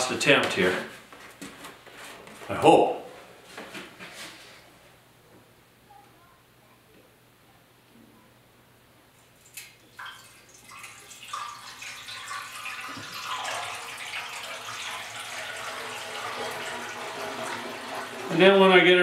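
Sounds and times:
liquid pouring into metal tank: 9.4 - 19.0.

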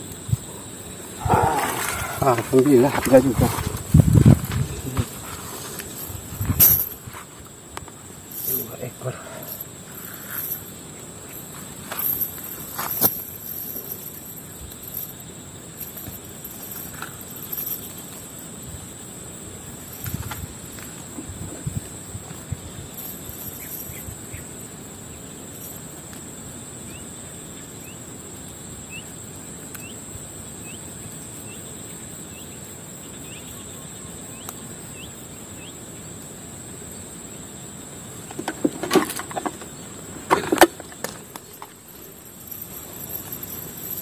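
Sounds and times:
insects droning: 0.0 - 44.0
close rustling and knocking: 1.4 - 15.2, 15.8 - 18.4, 19.8 - 24.2, 38.2 - 44.0.

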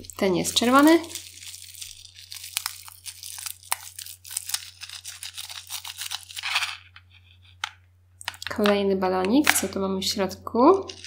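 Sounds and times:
crackling clicks and rustling: 10.8 - 11.0.

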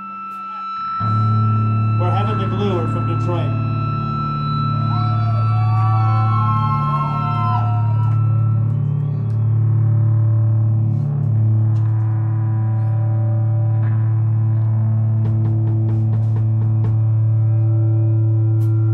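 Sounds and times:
wavering gliding high tones: 0.0 - 9.4
distorted electric guitar drone: 0.0 - 18.9.

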